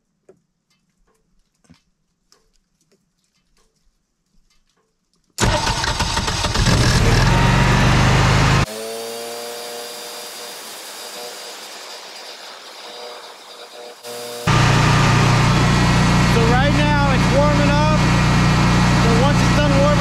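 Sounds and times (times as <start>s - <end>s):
generator engine running: 5.4s - 20.0s.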